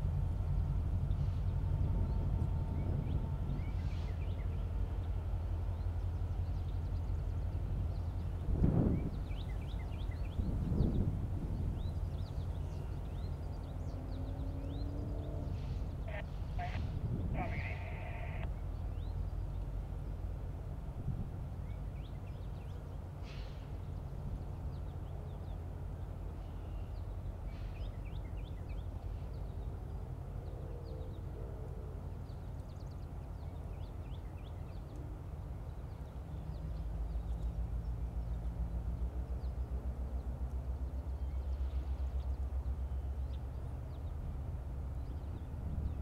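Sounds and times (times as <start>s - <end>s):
diesel locomotive engine rumble: 0.0s - 46.0s
birds chirping: 0.5s - 20.2s.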